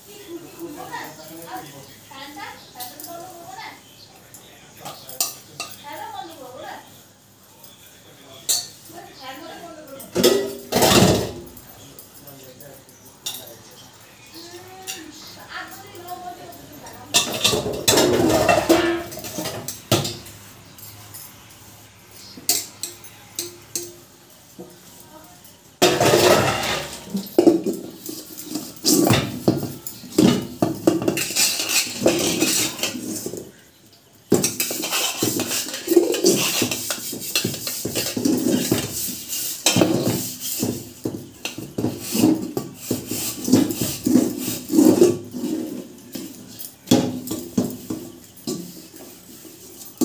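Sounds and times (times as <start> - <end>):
steel dishes clattering in sink: 10.0 - 11.7, 16.8 - 20.4, 25.8 - 50.0.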